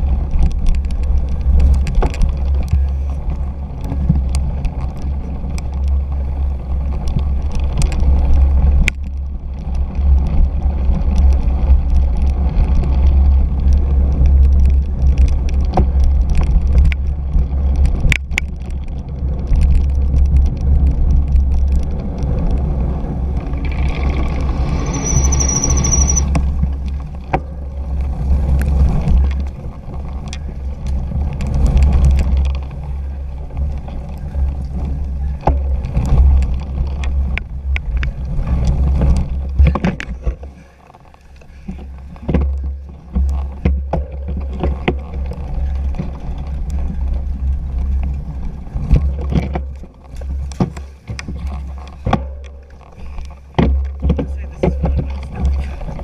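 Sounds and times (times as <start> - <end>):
bike knocks and rattles: 0.0 - 56.0
bike tyre rumble: 0.0 - 56.0
wind buffeting microphone: 0.0 - 56.0
high squeal: 24.0 - 26.4.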